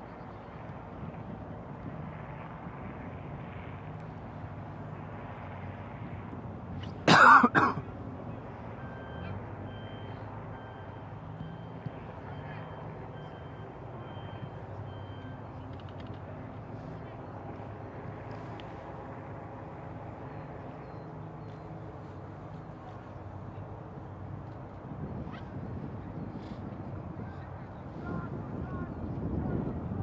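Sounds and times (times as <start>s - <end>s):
low outdoor background noise: 0.0s - 30.0s
man coughing: 7.1s - 7.9s
faint beeping: 8.7s - 16.0s.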